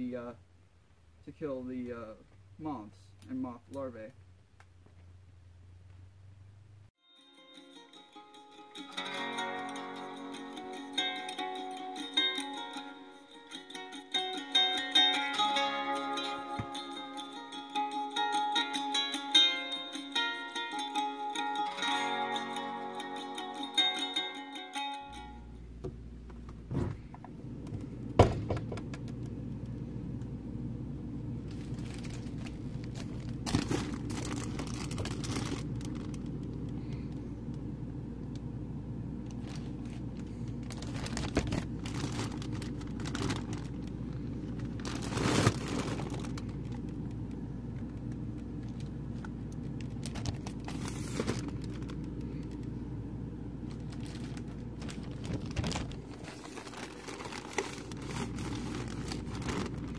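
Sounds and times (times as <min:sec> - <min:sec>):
steady low hum: 0:25.1 - 0:59.9
plastic bags crinkling: 0:31.4 - 0:36.8, 0:39.3 - 0:52.7, 0:53.6 - 0:59.9.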